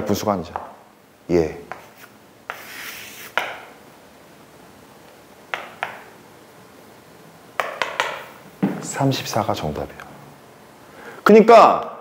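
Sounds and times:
scratchy scribble on surface: 1.9s - 3.4s
sharp taps: 5.5s - 6.1s.

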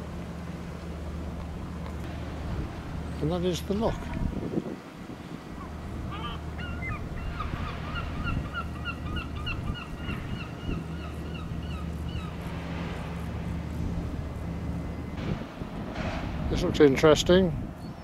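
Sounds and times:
low machinery hum: 0.0s - 18.0s
bird calling: 5.5s - 12.5s.

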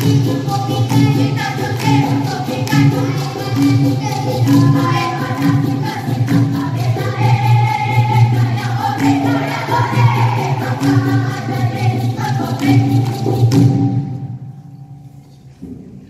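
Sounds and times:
boy singing into microphone: 0.0s - 12.8s
children's chorus singing: 0.0s - 13.7s
steady drum beat: 0.0s - 14.2s.

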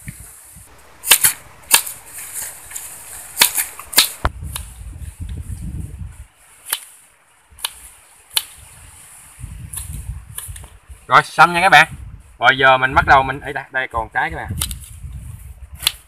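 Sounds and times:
machete chopping fruit onto rock: 1.0s - 2.0s, 3.4s - 4.7s, 6.6s - 6.9s, 7.6s - 8.6s, 14.5s - 14.9s, 15.8s - 16.0s.

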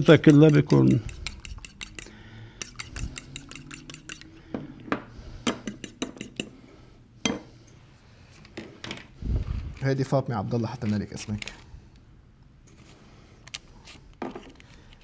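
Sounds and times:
utensil clinking against bowl: 0.0s - 4.3s.

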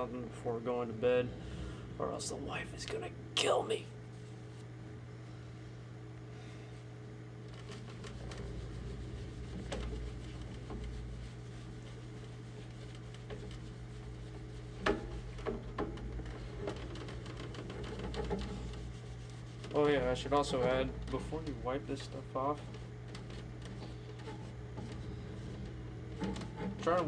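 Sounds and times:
steady low hum: 0.0s - 27.0s
paper towel rubbing plastic: 7.4s - 27.0s.

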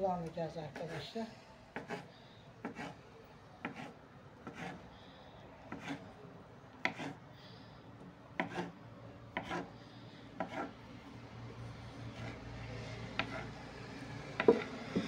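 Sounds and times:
knife knocking and scraping wood: 1.8s - 3.0s, 3.6s - 4.8s, 5.7s - 6.0s, 6.8s - 7.2s, 8.4s - 8.7s, 9.4s - 9.7s, 10.4s - 10.7s, 13.1s - 13.5s, 14.4s - 15.0s.

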